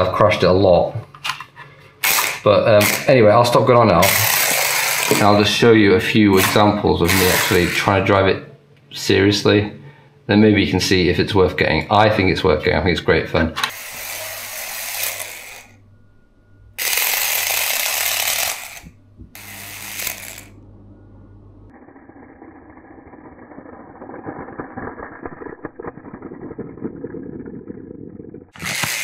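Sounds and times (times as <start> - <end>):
toy car electric motor whirring: 2.0 - 3.1, 4.0 - 5.4, 6.4 - 7.9, 13.7 - 15.8, 16.8 - 20.6, 21.8 - 29.0
low rattling buzz: 13.7 - 29.0.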